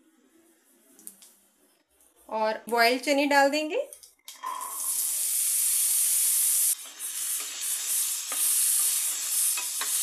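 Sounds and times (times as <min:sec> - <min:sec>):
chickpeas sizzling in hot oil: 0:04.5 - 0:10.0.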